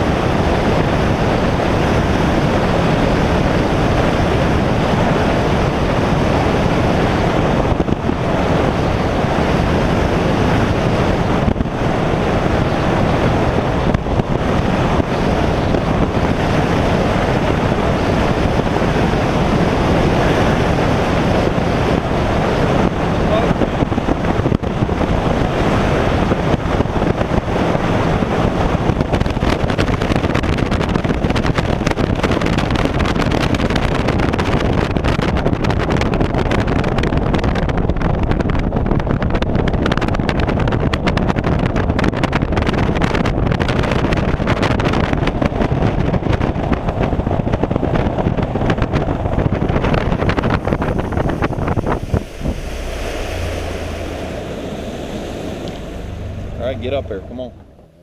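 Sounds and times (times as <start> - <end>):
outboard motor: 0.0 - 58.0
wind buffeting microphone: 0.0 - 58.0
water rushing past hull: 48.4 - 58.0.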